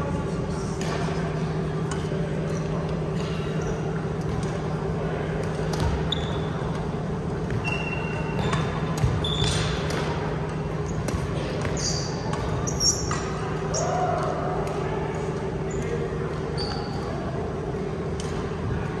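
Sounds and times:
steady low hum: 0.0s - 19.0s
sneaker squeaks: 2.4s - 4.5s, 5.4s - 14.1s, 15.6s - 17.3s.

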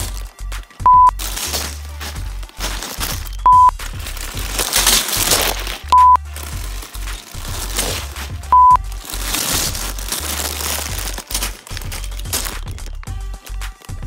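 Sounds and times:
music with repeating bass beat: 0.0s - 14.0s
plastic crinkling: 0.0s - 14.0s
loud steady beep: 0.8s - 1.2s, 3.4s - 3.7s, 5.9s - 6.2s, 8.5s - 8.8s.

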